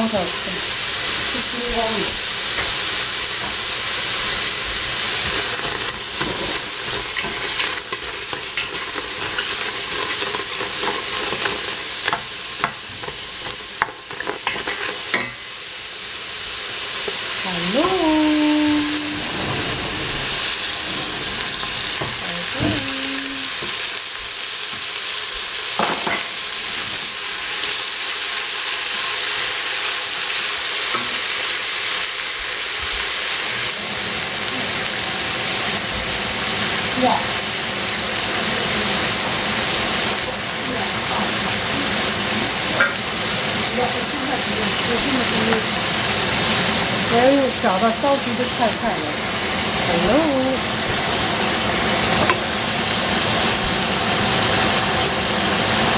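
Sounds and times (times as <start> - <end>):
vegetables sizzling in a pot: 0.0 - 55.9
wooden spatula scraping a pot: 5.2 - 11.8.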